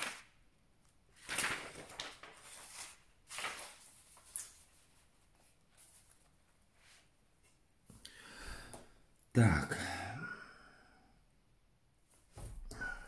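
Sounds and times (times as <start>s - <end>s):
paper sheets rustling: 0.0s - 0.4s, 1.1s - 7.1s.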